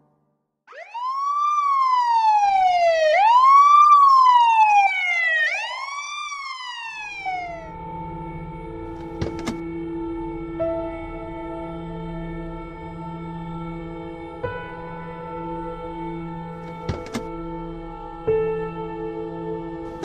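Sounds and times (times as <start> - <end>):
emergency vehicle siren wailing: 0.7 - 10.6.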